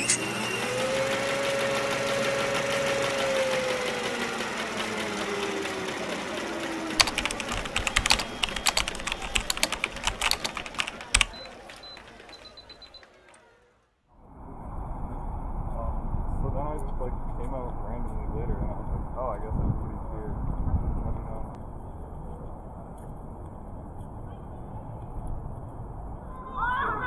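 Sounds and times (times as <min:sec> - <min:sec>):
rapid stuttering clicks: 0:02.5 - 0:12.4.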